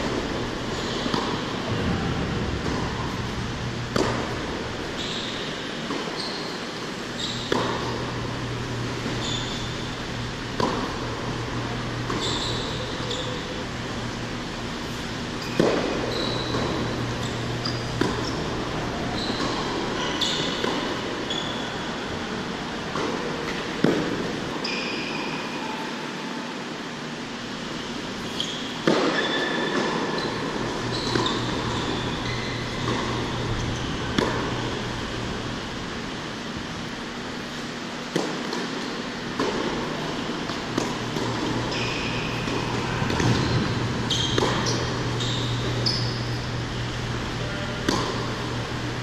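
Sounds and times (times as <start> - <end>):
tennis ball struck with racquets: 0.0 - 6.2, 7.4 - 8.2, 10.4 - 13.4, 15.4 - 21.0, 22.9 - 24.3, 28.8 - 35.9, 38.1 - 46.4, 47.7 - 48.7
ventilation hum: 0.0 - 49.0
shoe squeaks on court: 0.7 - 1.4, 4.9 - 7.6, 9.1 - 10.0, 12.1 - 13.6, 15.4 - 20.6, 21.2 - 21.9, 28.2 - 34.8, 41.2 - 46.5.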